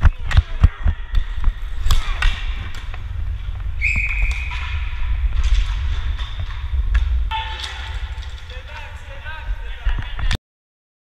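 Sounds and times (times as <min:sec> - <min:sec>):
skate wheels rumbling: 0:00.1 - 0:10.3
sharp knocks: 0:07.3 - 0:09.0.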